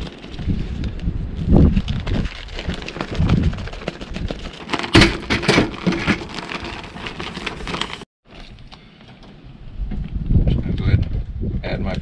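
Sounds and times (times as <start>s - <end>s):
plastic bag crinkling: 1.8s - 8.1s.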